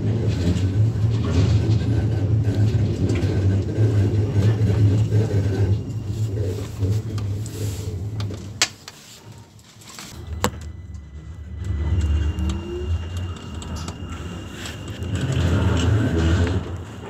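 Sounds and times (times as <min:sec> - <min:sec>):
tram wheels rumbling: 0:00.0 - 0:17.0.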